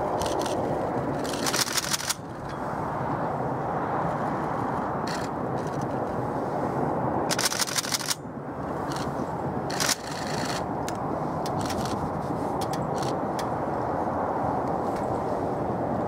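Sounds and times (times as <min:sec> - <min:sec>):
train wheels rumbling on rail: 0:00.0 - 0:02.9, 0:04.2 - 0:06.2, 0:07.3 - 0:13.8.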